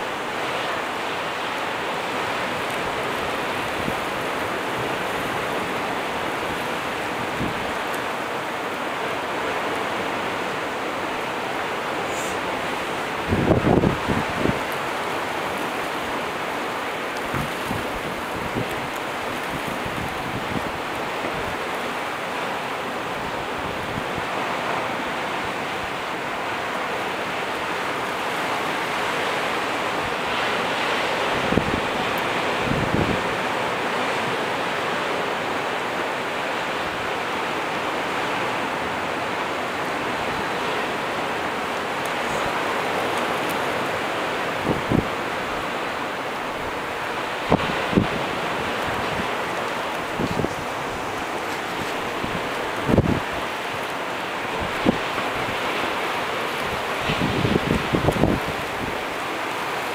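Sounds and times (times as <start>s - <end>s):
rushing outdoor background noise: 0.0s - 59.9s.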